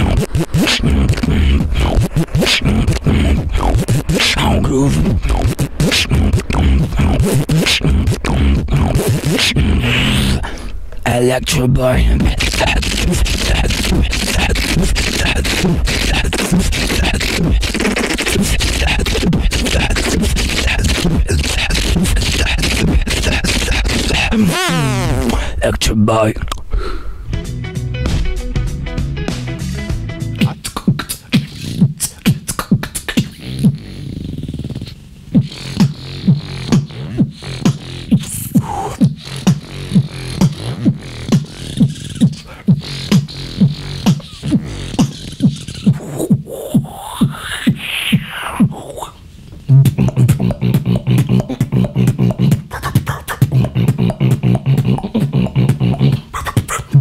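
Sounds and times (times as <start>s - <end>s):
beatboxing into a microphone: 0.0s - 27.1s, 30.3s - 57.0s
low bass hum: 0.0s - 30.5s.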